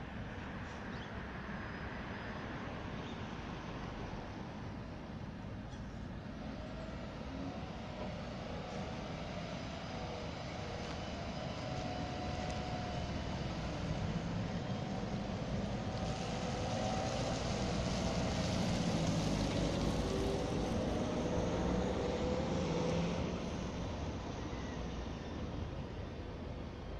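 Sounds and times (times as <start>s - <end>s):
street traffic rushing: 0.0s - 26.9s
tram motor whine: 6.6s - 26.9s.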